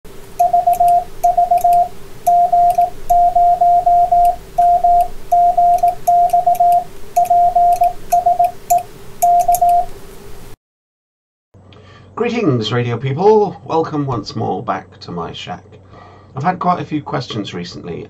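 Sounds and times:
morse code tone: 0:00.4 - 0:09.9.

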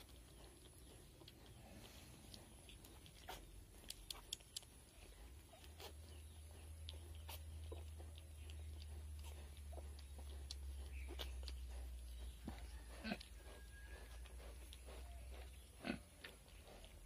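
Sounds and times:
low steady hum: 0:00.0 - 0:17.0
piglets squeaking: 0:02.9 - 0:11.6.

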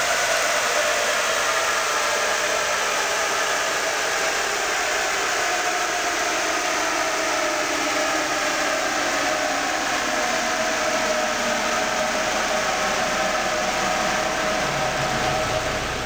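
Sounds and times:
blower-like rush: 0:00.0 - 0:16.0
diesel engine running: 0:11.3 - 0:16.0.

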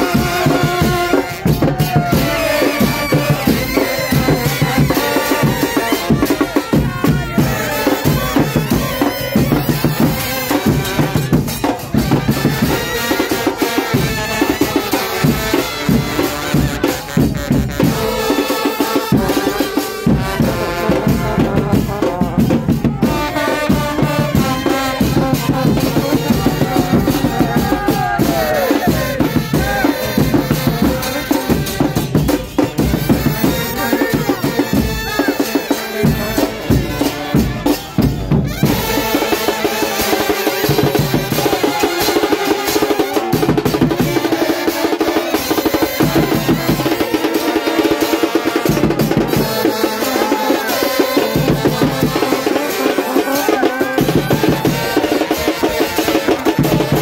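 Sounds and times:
brass horns playing chant tune: 0:00.0 - 0:57.0
crowd voices: 0:00.0 - 0:57.0
pounding bass drums: 0:00.0 - 0:57.0.

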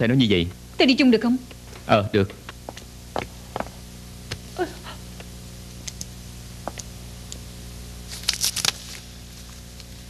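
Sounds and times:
steady low hum: 0:00.0 - 0:10.0
woman whimpering: 0:04.6 - 0:05.1.

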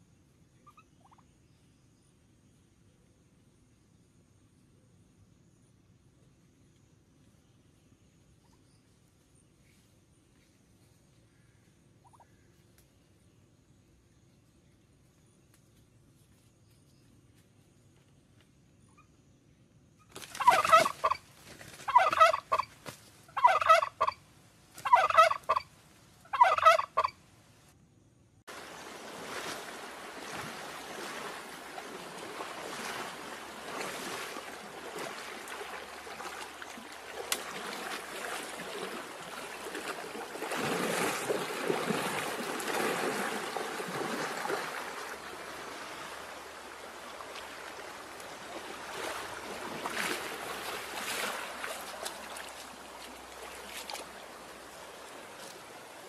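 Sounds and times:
turkey-like fowl calls: 0:00.6 - 0:01.2, 0:12.0 - 0:12.4, 0:20.4 - 0:24.2, 0:24.8 - 0:25.7, 0:26.3 - 0:27.2.

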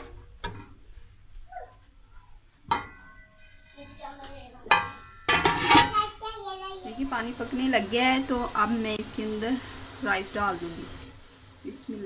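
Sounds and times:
metal striking cooking pot: 0:00.0 - 0:00.8, 0:02.6 - 0:06.0.

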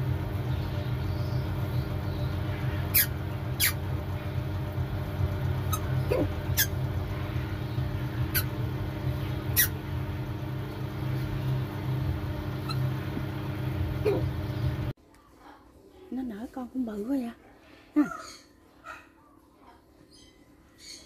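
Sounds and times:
low mechanical hum: 0:00.0 - 0:17.4
chick squeaking: 0:02.8 - 0:03.8, 0:08.3 - 0:08.6, 0:09.5 - 0:09.8.

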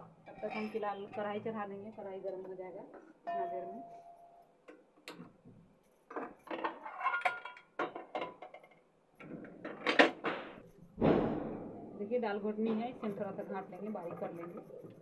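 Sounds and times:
metal cookware clattering: 0:00.0 - 0:04.2, 0:06.1 - 0:15.0
loud metal clank: 0:10.2 - 0:12.0.

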